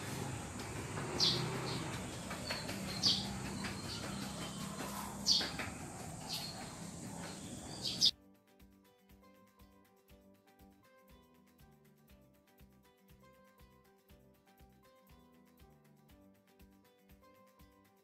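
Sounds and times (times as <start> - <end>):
bird chirping: 0.0 - 8.1
steady low hum: 0.0 - 8.1.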